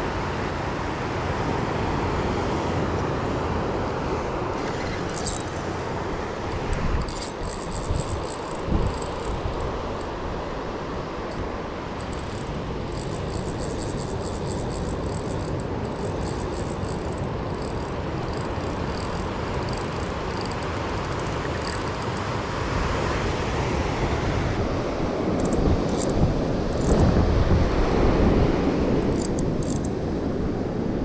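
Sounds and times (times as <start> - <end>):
wind rumbling on microphone: 4.4 - 10.5, 23.7 - 31.0.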